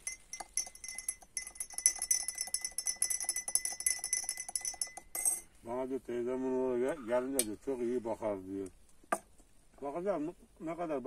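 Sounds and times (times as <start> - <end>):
teaspoon clinking in a glass: 0.0 - 5.5.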